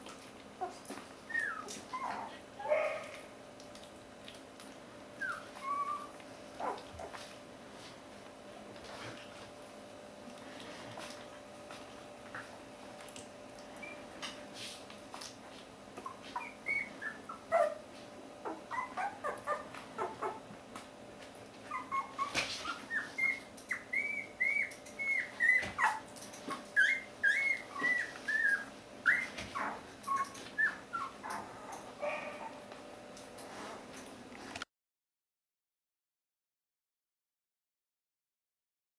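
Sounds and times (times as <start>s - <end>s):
puppies squeaking and whimpering: 0.6s - 2.8s, 5.2s - 7.2s, 13.8s - 14.1s, 16.0s - 20.5s, 21.6s - 32.6s.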